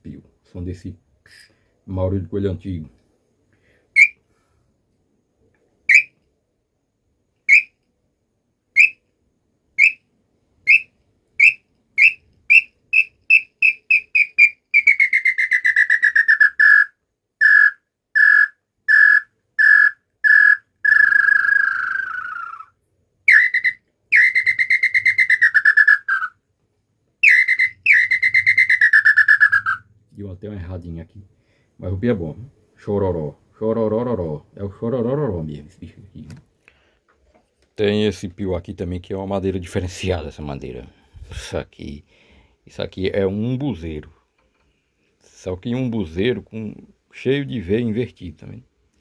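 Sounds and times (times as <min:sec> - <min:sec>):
wooden bird call whistling: 0:03.9 - 0:04.2, 0:05.8 - 0:06.2, 0:07.4 - 0:07.8, 0:08.7 - 0:09.1, 0:09.8 - 0:26.4, 0:27.2 - 0:29.9.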